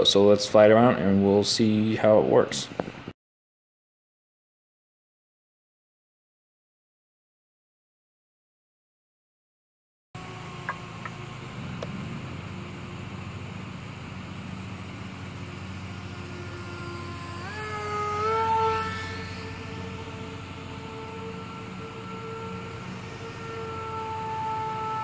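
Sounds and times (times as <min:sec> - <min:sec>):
model airplane electric motor whine: 0:10.2 - 0:25.0.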